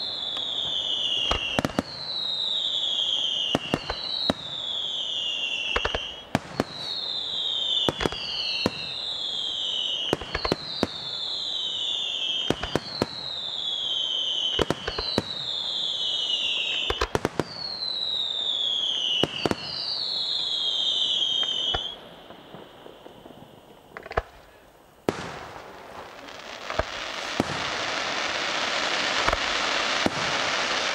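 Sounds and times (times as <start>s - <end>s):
firework whistle falling in pitch: 0.0s - 23.6s
fireworks bursting with bangs: 0.0s - 30.9s.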